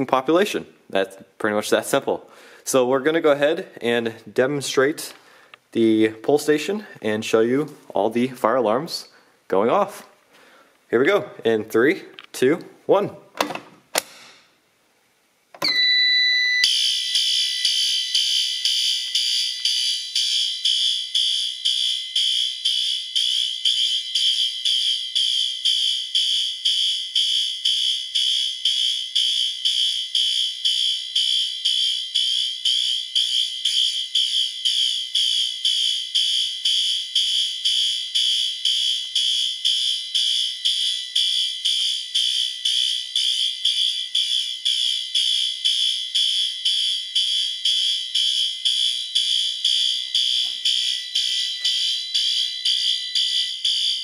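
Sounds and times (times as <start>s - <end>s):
fire alarm horn pulsing: 15.6s - 54.0s.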